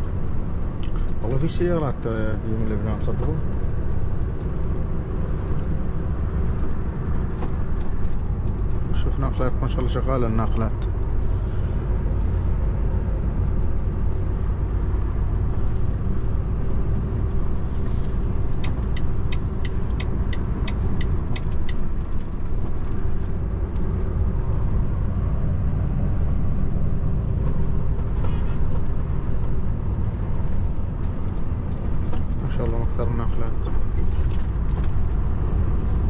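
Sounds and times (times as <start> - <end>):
truck engine and road rumble: 0.0 - 36.0
even ticks: 18.6 - 21.9.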